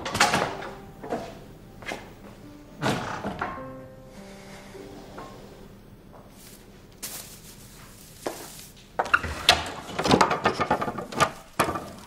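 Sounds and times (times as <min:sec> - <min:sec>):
objects rustling and clattering: 0:06.2 - 0:12.0.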